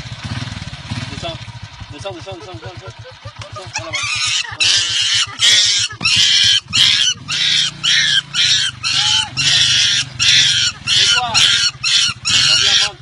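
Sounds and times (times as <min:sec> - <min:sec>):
motorcycle engine idling: 0:00.0 - 0:13.0
young monkey screaming: 0:03.4 - 0:13.0.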